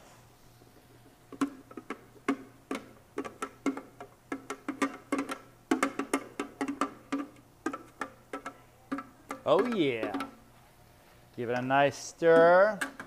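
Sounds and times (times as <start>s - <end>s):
wooden spoon knocking plastic container: 1.4s - 10.4s.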